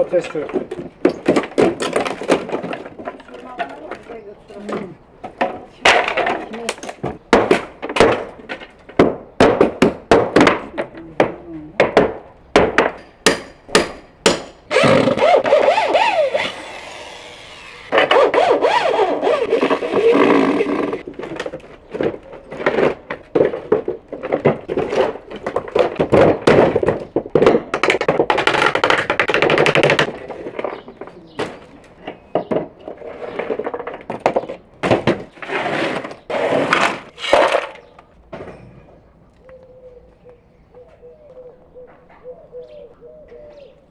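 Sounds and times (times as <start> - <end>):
wood and concrete breaking: 0.2 - 15.8, 17.9 - 39.0
knocks on wooden boards: 0.4 - 4.1, 4.7 - 14.6, 20.2 - 35.3
power tool whirring: 14.7 - 21.0.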